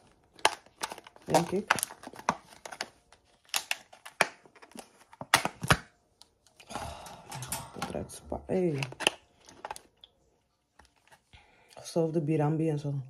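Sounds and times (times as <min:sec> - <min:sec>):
plastic lid clicks and crackles: 0:00.4 - 0:06.3.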